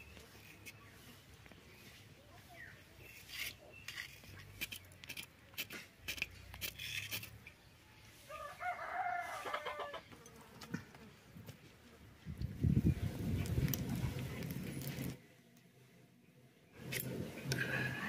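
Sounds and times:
knife scraping skin: 3.1 - 7.4
rooster crowing: 8.3 - 10.0.

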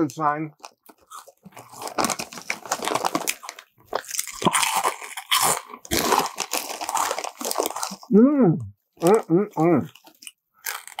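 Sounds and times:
crunching corn chips: 0.6 - 8.1, 9.9 - 11.0.

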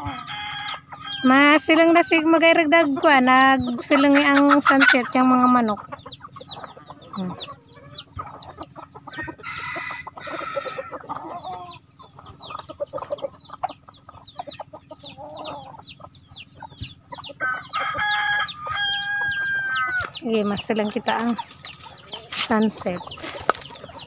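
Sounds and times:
rooster crowing: 0.0 - 1.7, 9.0 - 11.8, 17.3 - 20.2
chickens clucking: 0.0 - 24.0
rapid high-pitched chirping: 0.6 - 24.0.

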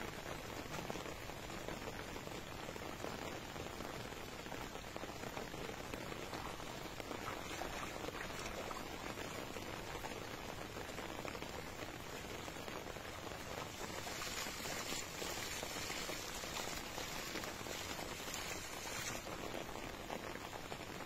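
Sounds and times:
water pattering: 5.8 - 19.3
net splashing in water: 6.4 - 9.6, 13.6 - 19.3.

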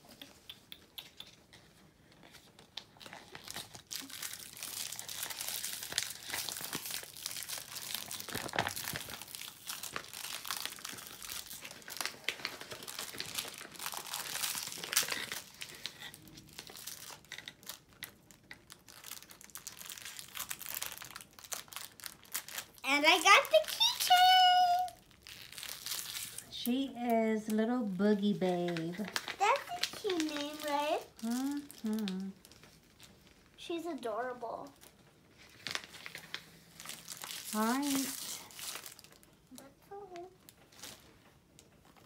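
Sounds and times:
plastic wrapper crinkling and tearing: 1.1 - 42.0.

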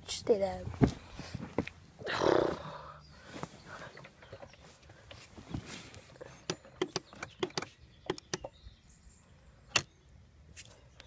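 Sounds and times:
starter clicking: 6.4 - 8.5.

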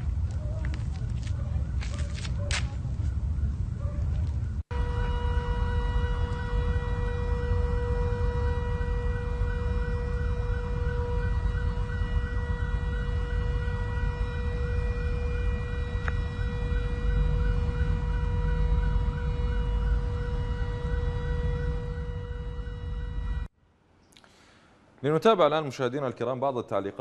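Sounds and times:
warbling alarm siren: 3.0 - 23.5.

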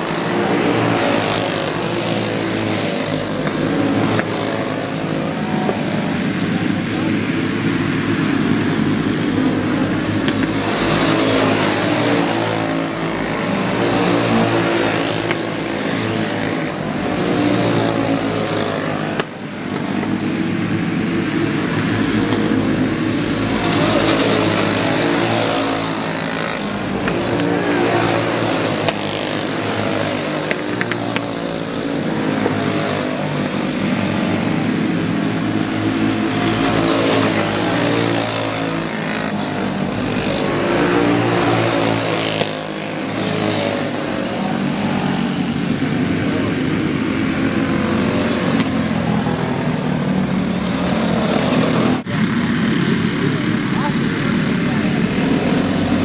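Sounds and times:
karts racing: 0.0 - 56.0.

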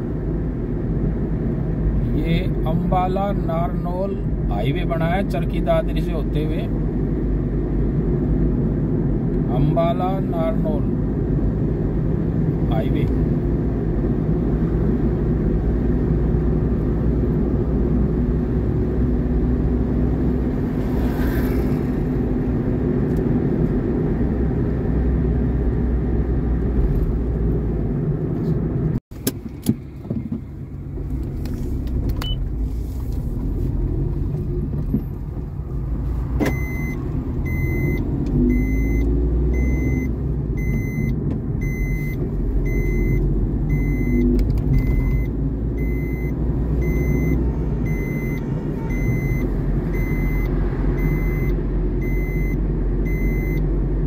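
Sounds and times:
vehicle engine and road rumble: 0.0 - 54.0
electronic beeps: 39.6 - 53.6.

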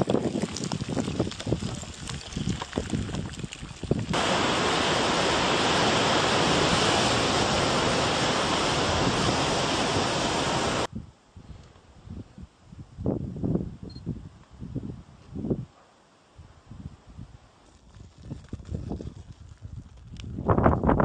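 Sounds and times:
surf and wind rushing: 3.9 - 10.9
uneven gusty noise: 4.0 - 11.1.

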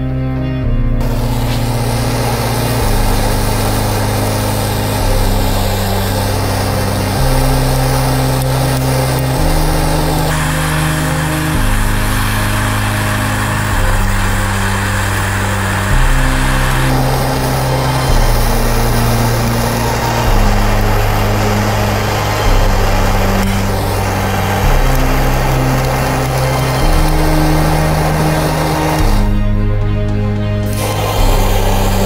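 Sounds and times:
electronic music with held bass: 0.0 - 32.0
steady hiss: 1.0 - 29.4, 30.6 - 32.0.

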